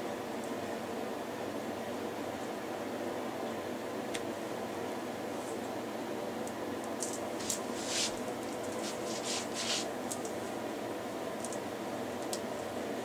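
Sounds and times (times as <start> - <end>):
steady background hiss: 0.0 - 13.0
foam rods rustling and scrunching: 7.0 - 10.4.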